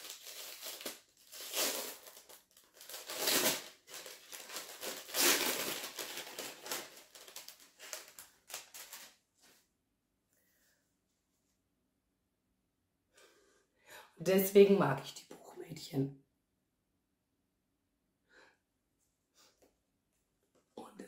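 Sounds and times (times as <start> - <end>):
paper crinkling and rustling: 0.0 - 9.6.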